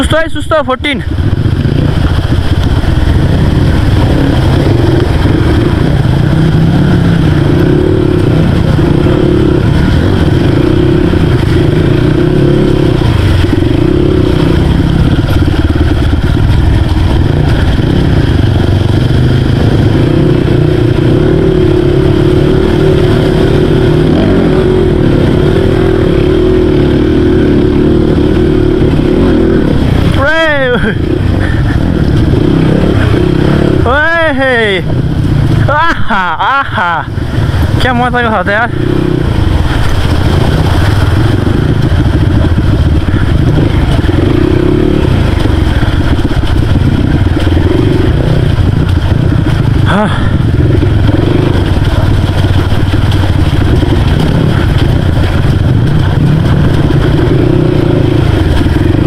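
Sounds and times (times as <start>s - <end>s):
dirt bike engine running: 0.0s - 59.0s.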